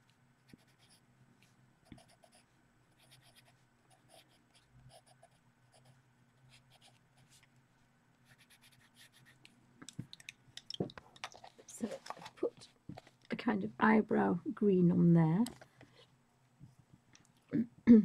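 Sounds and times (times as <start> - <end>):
pencil scratching on paper: 1.9 - 2.4, 3.0 - 5.9, 8.2 - 9.4.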